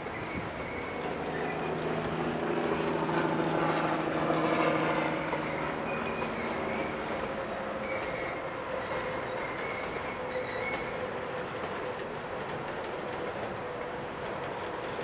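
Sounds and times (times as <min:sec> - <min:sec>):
wheels squealing: 0:00.0 - 0:02.8, 0:03.4 - 0:12.0
train wheels rumbling: 0:00.0 - 0:15.0.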